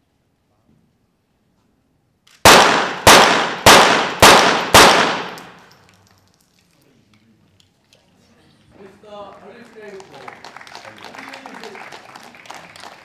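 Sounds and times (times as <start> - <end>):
pistol shots echoing: 2.4 - 5.7.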